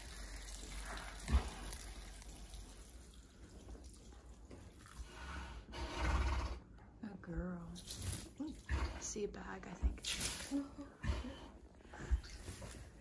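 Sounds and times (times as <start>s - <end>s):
fluid dripping into straw: 0.0s - 5.3s.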